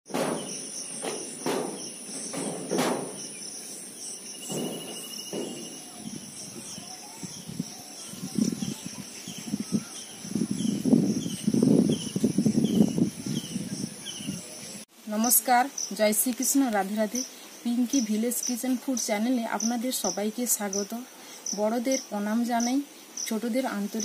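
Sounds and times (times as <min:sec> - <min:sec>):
sharp knocks: 0:00.1 - 0:03.4, 0:04.4 - 0:05.9
bird-like chirps: 0:00.1 - 0:14.8
insects trilling: 0:00.1 - 0:24.0.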